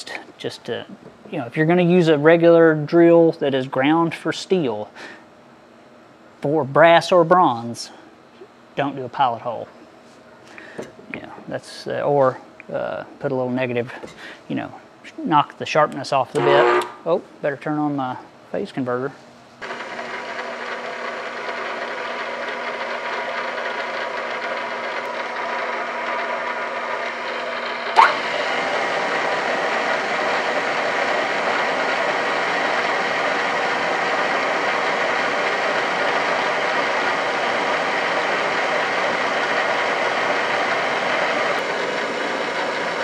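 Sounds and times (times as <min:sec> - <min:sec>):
drill press motor hum: 0:16.4 - 0:17.0, 0:19.6 - 0:43.0.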